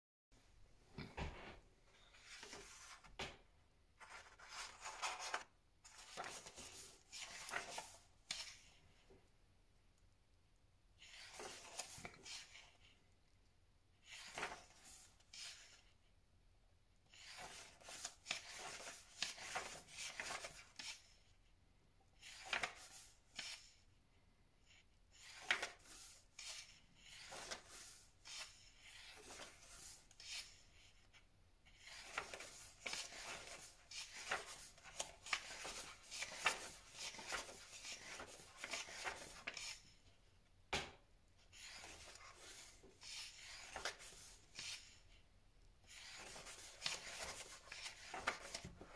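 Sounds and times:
book pages turning: 2.0s - 3.4s, 4.0s - 8.8s, 11.0s - 13.0s, 14.0s - 15.8s, 17.1s - 21.2s, 22.2s - 23.8s, 25.1s - 30.7s, 31.7s - 40.0s, 41.5s - 45.0s, 45.8s - 48.9s.

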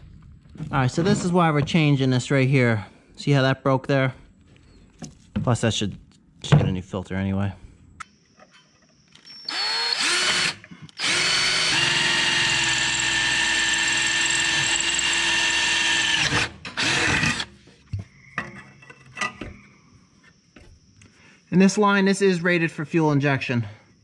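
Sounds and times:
cordless drill boring into steel: 9.4s - 17.5s.

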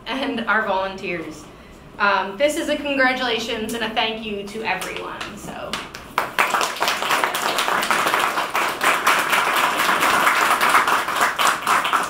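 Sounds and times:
audience clapping: 5.7s - 12.0s.

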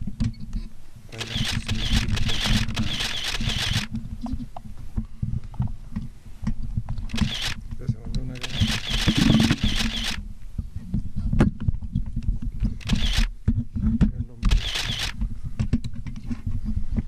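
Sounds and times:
microphones knocked and rustled: 0.0s - 17.0s
camera shutter clicking: 1.1s - 3.9s, 7.1s - 7.6s, 8.3s - 10.2s, 12.8s - 13.3s, 14.4s - 15.2s.

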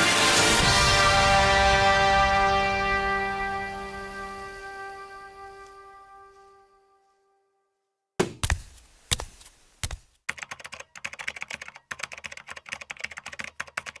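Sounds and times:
fast irregular clicking: 9.9s - 14.0s.

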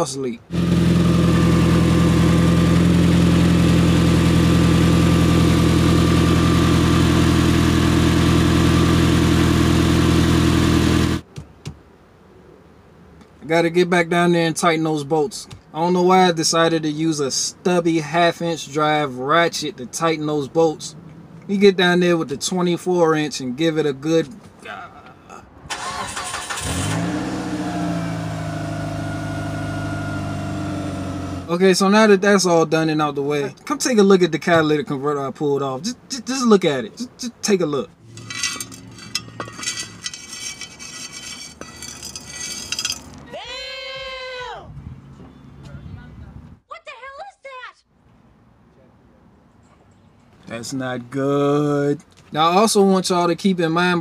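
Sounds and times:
car engine cranking and idling: 0.4s - 11.3s, 25.7s - 31.5s, 37.8s - 43.3s.

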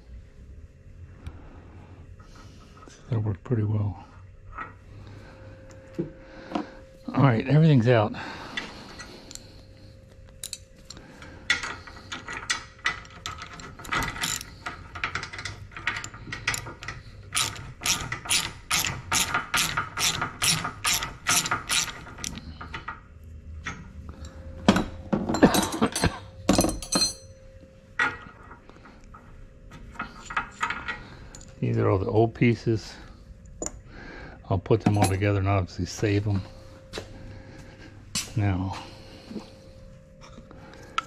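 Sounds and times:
ratchet wrench clicking: 16.0s - 22.4s.

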